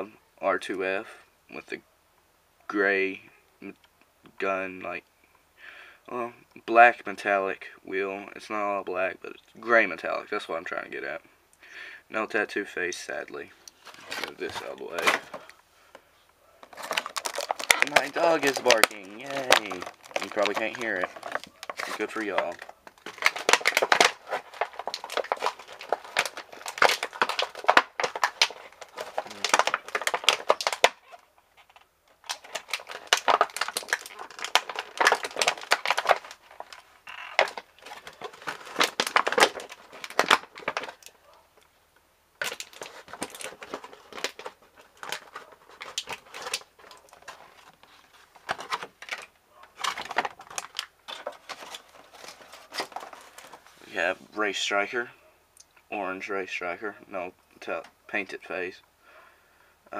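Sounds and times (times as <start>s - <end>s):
plastic packaging crinkling: 13.7s - 15.6s, 16.6s - 41.4s, 42.4s - 54.2s.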